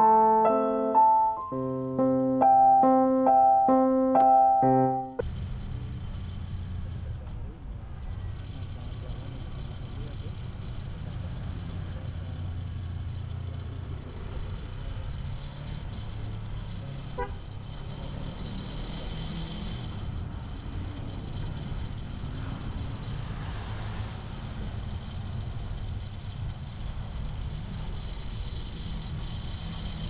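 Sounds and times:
horn beep: 0.0s - 5.2s.

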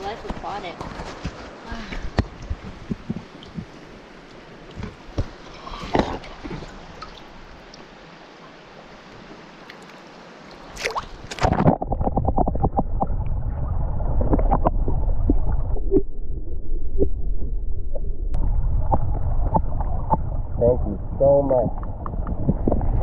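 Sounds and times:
water splashing: 0.0s - 8.1s, 9.6s - 23.0s
muffled underwater rumble: 11.5s - 23.0s.

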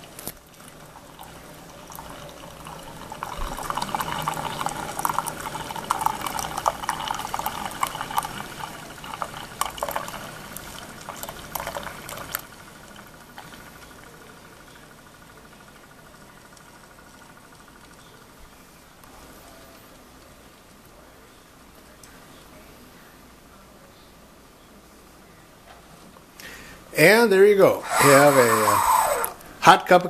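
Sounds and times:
coffee pouring into a mug: 0.0s - 18.3s
low steady machine hum: 0.0s - 25.5s.

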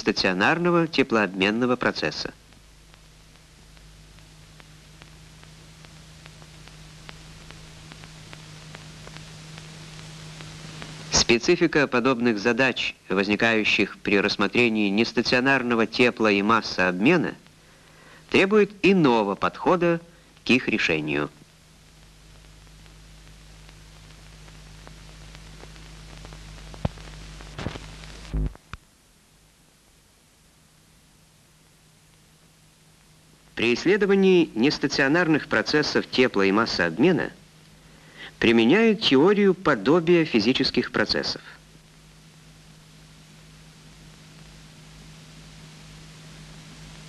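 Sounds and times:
film soundtrack hiss: 0.0s - 47.0s
low hum: 0.0s - 47.0s
faint clicks: 2.5s - 11.2s, 21.4s - 28.9s.

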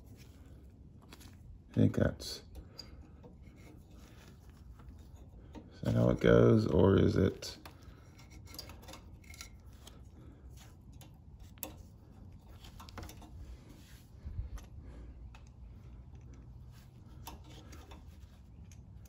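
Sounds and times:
light metal clicks and ticks: 10.7s - 13.4s, 14.5s - 19.0s.

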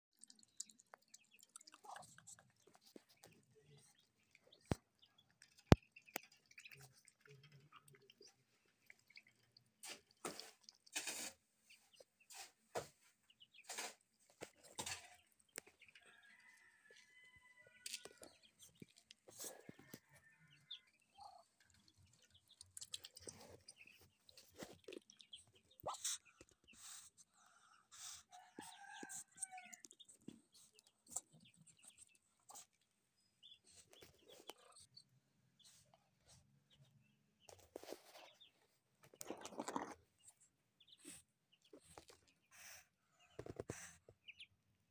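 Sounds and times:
ducklings peeping: 11.2s - 35.7s, 39.2s - 44.5s
ducklings high peeps: 39.2s - 44.5s.

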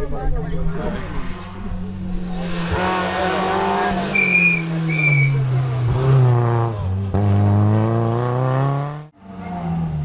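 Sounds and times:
rally car engine revving: 0.4s - 10.0s
shrill whistle blasts: 4.1s - 5.4s.

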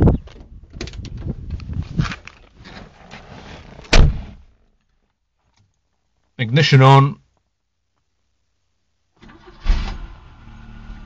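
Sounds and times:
rustling and shuffling: 0.0s - 6.4s
car door slamming: 3.9s - 4.4s.

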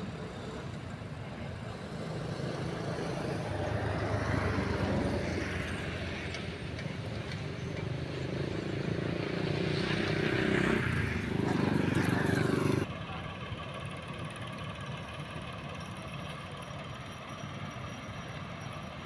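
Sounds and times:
vehicle passing: 0.0s - 12.9s
road traffic rumble: 0.0s - 19.0s.

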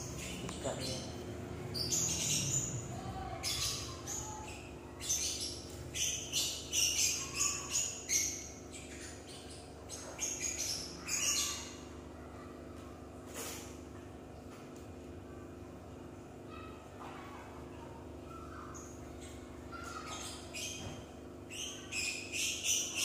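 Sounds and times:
bird chirping: 0.0s - 11.9s, 18.3s - 23.0s
steady low hum: 0.0s - 23.0s.

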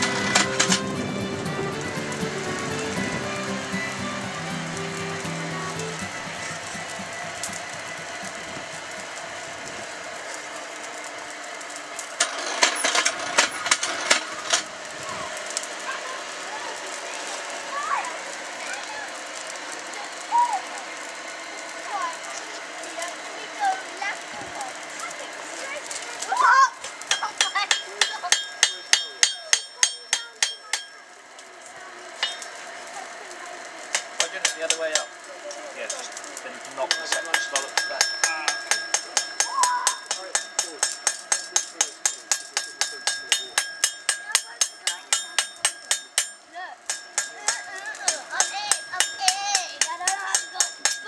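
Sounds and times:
hammer striking blade on anvil: 0.0s - 0.9s, 27.1s - 31.0s, 32.2s - 32.6s, 33.9s - 35.1s, 36.8s - 51.0s
forge fire hissing: 0.0s - 51.0s
sharp crackles and clicks: 0.0s - 51.0s.

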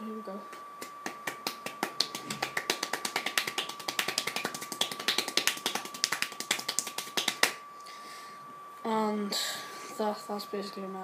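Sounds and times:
fast hand clapping: 0.8s - 7.6s.

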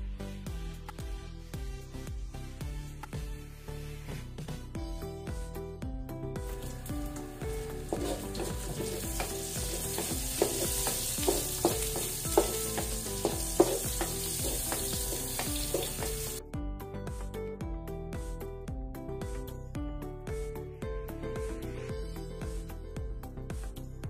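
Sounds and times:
background music: 0.0s - 24.0s
vegetables sizzling in oil: 6.5s - 16.4s
spatula scraping a wok: 7.9s - 16.4s.

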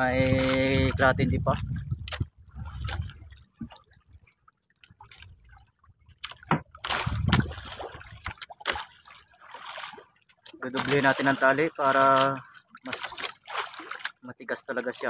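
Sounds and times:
water splashing against boat: 0.0s - 15.0s.

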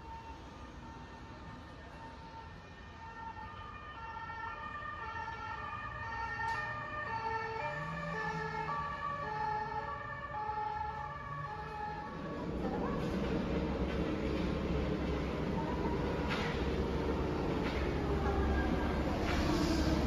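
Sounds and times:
two-tone emergency siren: 0.0s - 13.0s
low traffic rumble: 0.0s - 20.0s.

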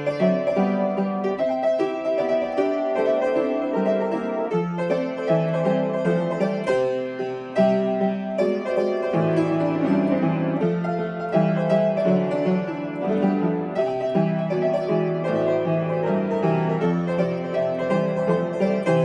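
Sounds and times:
upright piano playing: 0.0s - 19.0s.

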